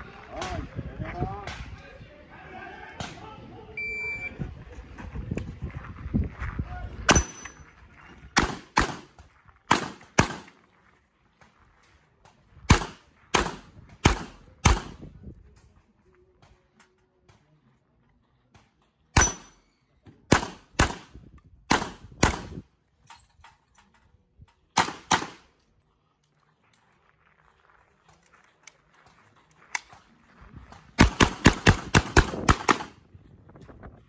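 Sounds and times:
carbine gunshots: 7.1s - 7.6s, 8.4s - 10.6s, 12.7s - 15.0s, 19.2s - 19.6s, 20.3s - 21.1s, 21.7s - 22.6s, 24.8s - 25.5s, 31.0s - 33.0s.

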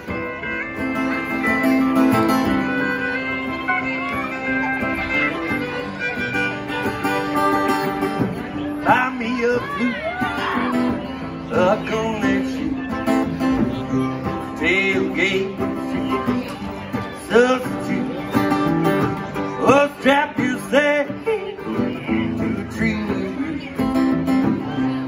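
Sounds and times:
electric guitar: 0.0s - 25.0s
fiddle playing sliding lead lines: 0.0s - 25.0s
strummed acoustic guitar: 0.0s - 25.0s
drums: 6.5s - 12.2s.

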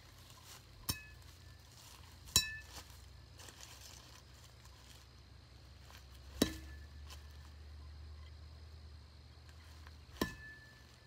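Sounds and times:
metal bat pinging: 0.8s - 1.2s, 2.3s - 2.7s, 6.3s - 7.0s, 10.1s - 10.9s.

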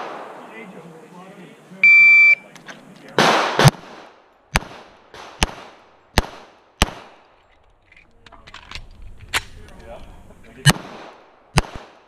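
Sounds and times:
pistol shots: 3.2s - 7.2s, 10.6s - 12.0s.

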